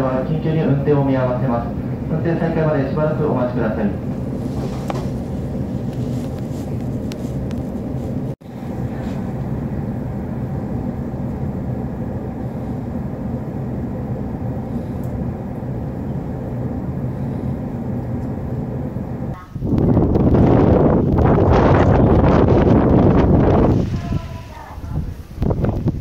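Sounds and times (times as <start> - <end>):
train equipment hum and hiss: 0.0 - 26.0.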